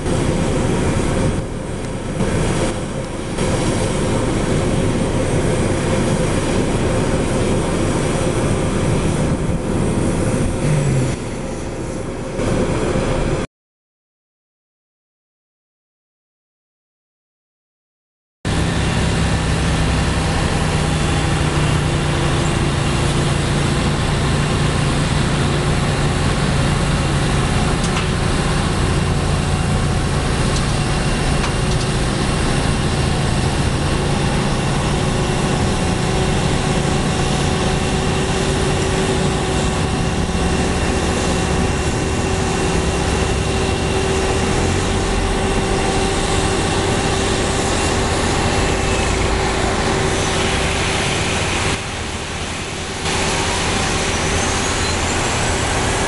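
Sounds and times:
tug engine running: 0:00.0 - 0:13.4, 0:18.5 - 0:56.0
aircraft hum and whine: 0:00.0 - 0:13.5, 0:18.5 - 0:56.0.

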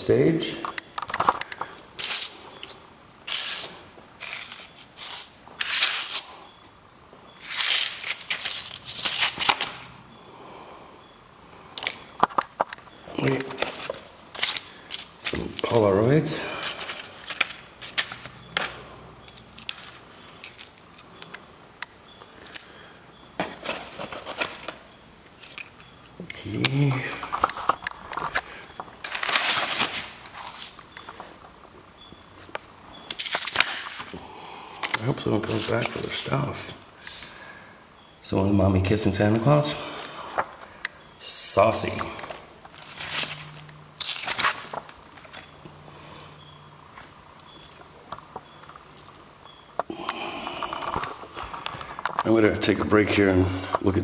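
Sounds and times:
papers rustling and crinkling: 0:07.4 - 0:09.9, 0:11.8 - 0:15.9, 0:16.6 - 0:21.3, 0:23.4 - 0:25.8, 0:26.7 - 0:31.5, 0:40.0 - 0:40.8, 0:41.5 - 0:45.6
photographic prints shuffling: 0:11.8 - 0:21.5, 0:23.4 - 0:34.2, 0:39.1 - 0:45.6.

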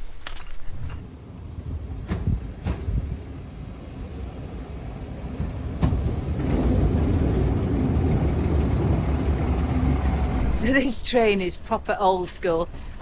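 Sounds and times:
diesel engine rumbling: 0:05.2 - 0:13.0.

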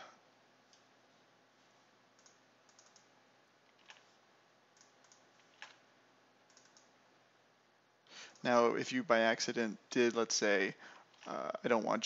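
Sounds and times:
faint keyboard typing: 0:02.1 - 0:05.8, 0:06.4 - 0:07.0, 0:08.2 - 0:08.6, 0:10.9 - 0:11.4.

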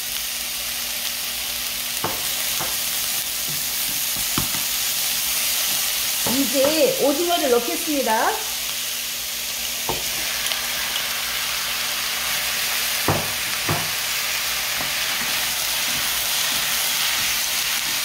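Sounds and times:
food sizzling in a pan: 0:00.0 - 0:18.0
knocks against the pan: 0:02.0 - 0:02.8, 0:13.1 - 0:14.0.

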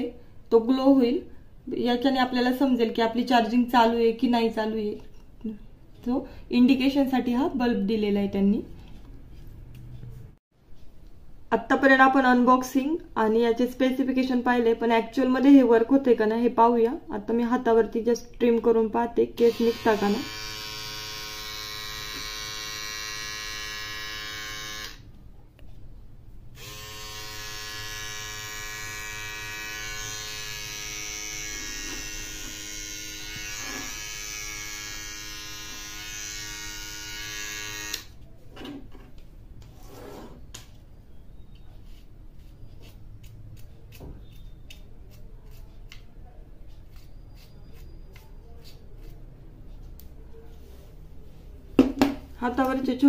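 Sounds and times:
beard trimmer buzzing: 0:19.5 - 0:25.0, 0:26.6 - 0:38.2.

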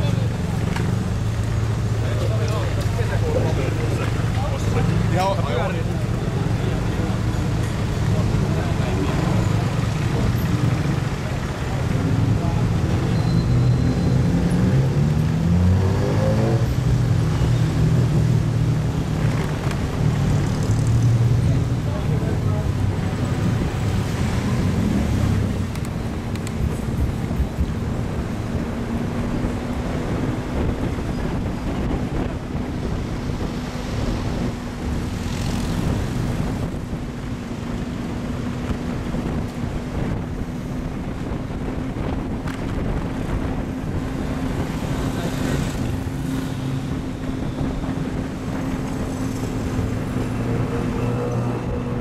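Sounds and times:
street traffic: 0:00.0 - 0:52.0
wind on microphone: 0:22.6 - 0:52.0.

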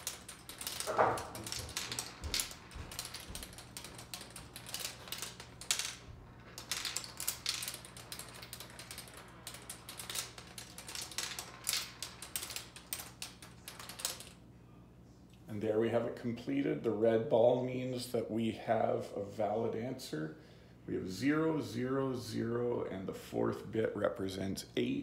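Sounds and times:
marbles clicking on plastic ramps: 0:00.0 - 0:14.4.

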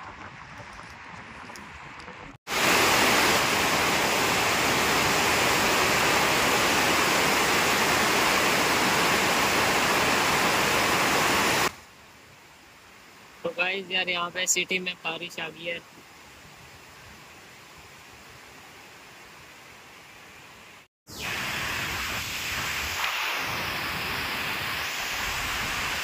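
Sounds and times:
heavy rain pouring: 0:02.5 - 0:11.7.

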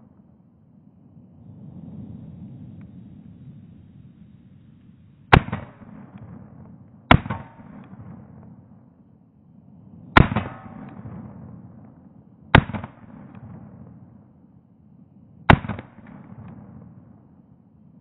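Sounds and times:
pistol shots with echo: 0:05.3 - 0:08.5, 0:10.2 - 0:11.7, 0:12.5 - 0:13.9, 0:15.5 - 0:17.0.

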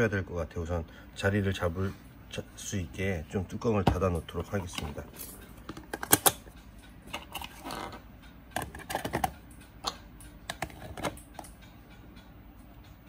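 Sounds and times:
lids clicking and knocking: 0:03.8 - 0:06.5, 0:07.1 - 0:08.0, 0:08.6 - 0:11.5.

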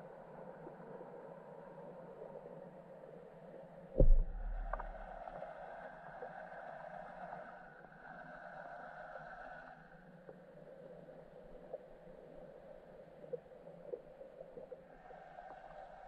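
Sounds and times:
heavy low underwater thump: 0:04.0 - 0:05.2.

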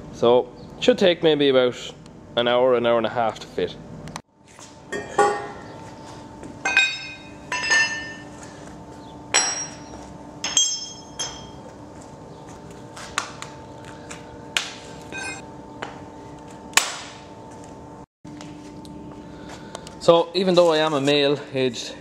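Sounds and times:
metal parts clanking on concrete: 0:06.6 - 0:08.3, 0:09.4 - 0:11.6, 0:15.1 - 0:15.4.

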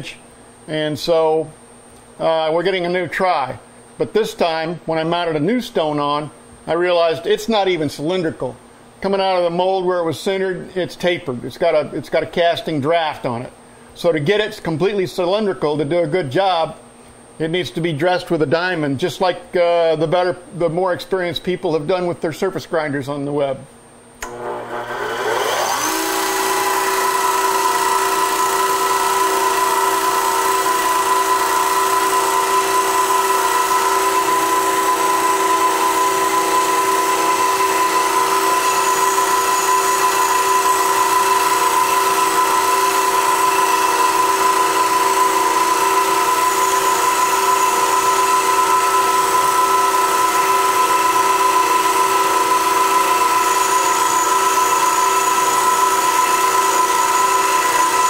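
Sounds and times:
grinder motor whine: 0:24.2 - 0:58.0.

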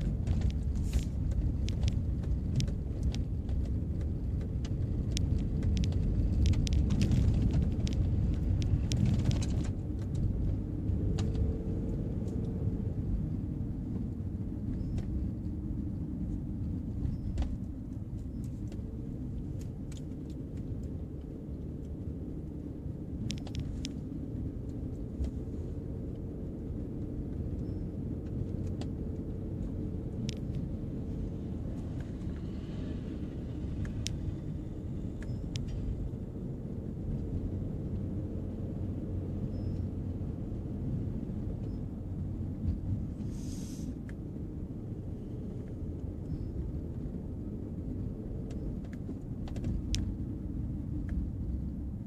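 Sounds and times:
gravel crackle and stone clicks: 0:00.0 - 0:11.6, 0:23.2 - 0:24.0, 0:27.4 - 0:32.8, 0:33.5 - 0:36.0, 0:48.5 - 0:50.2
car engine and tyre rumble: 0:00.0 - 0:52.0.

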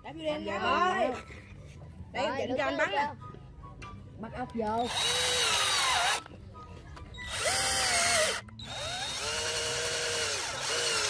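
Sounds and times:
cordless drill motor whine: 0:04.9 - 0:06.2, 0:07.3 - 0:11.0.

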